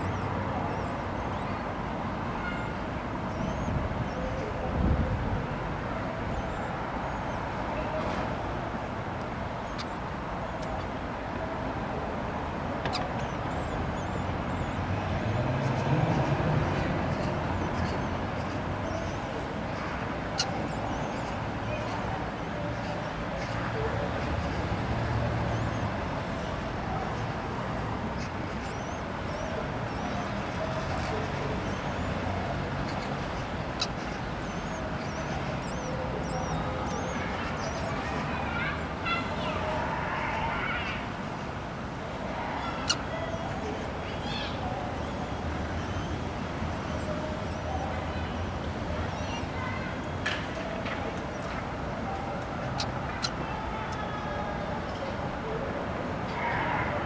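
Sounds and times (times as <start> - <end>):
traffic hum: 0.0 - 57.0
nestlings begging squeaks: 2.5 - 4.4, 9.6 - 10.9, 12.9 - 24.7, 25.4 - 26.5, 28.1 - 41.4, 42.6 - 51.8, 52.4 - 53.4.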